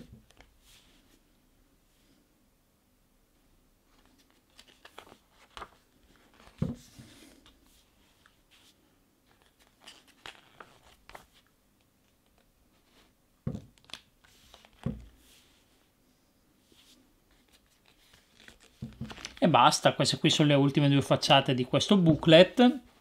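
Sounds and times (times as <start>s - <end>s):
paper pages rustling: 3.9s - 13.1s, 16.7s - 19.4s
dull thumps of pages pressed: 6.5s - 7.0s, 13.4s - 13.7s, 14.8s - 15.1s, 18.8s - 19.3s.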